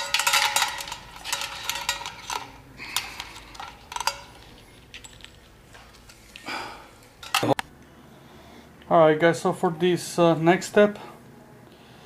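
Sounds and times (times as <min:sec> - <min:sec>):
wires clicking against metal: 0:00.0 - 0:06.5.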